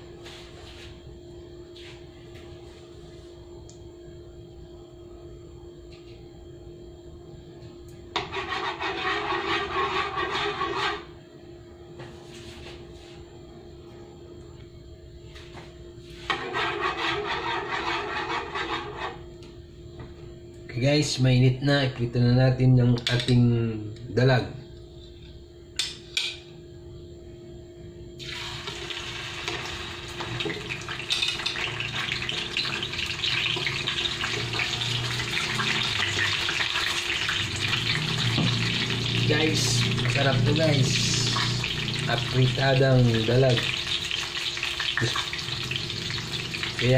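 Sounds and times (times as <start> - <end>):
steady low hum: 0.0 - 46.9
hot oil sizzling in a frying pan: 28.2 - 46.9.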